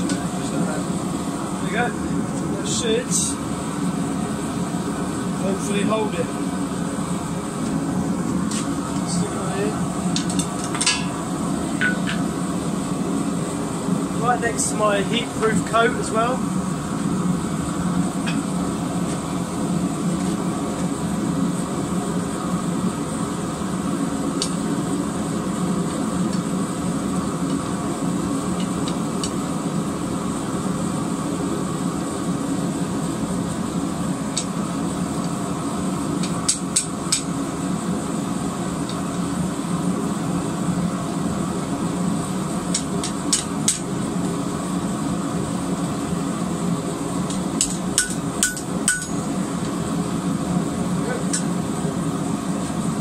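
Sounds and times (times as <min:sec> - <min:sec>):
loud steady drone: 0:00.0 - 0:53.0
hammer striking steel on anvil: 0:47.6 - 0:49.2.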